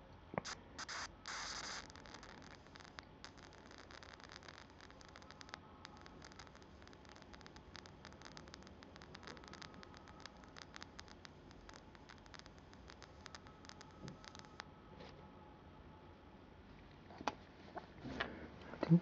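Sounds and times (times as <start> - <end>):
short arc hiss: 0.4 - 14.6
electric arc crackling: 0.4 - 14.7.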